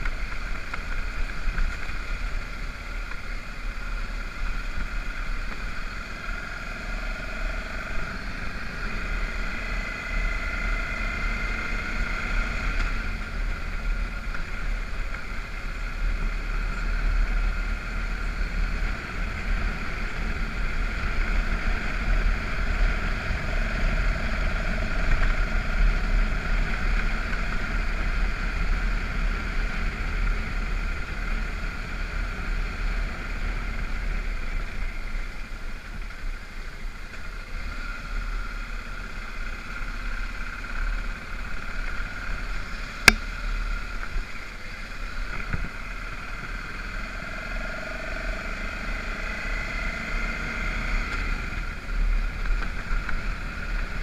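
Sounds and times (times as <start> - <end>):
motorcycle engine running: 0.0 - 54.0
wind rumble on microphone: 45.2 - 46.0.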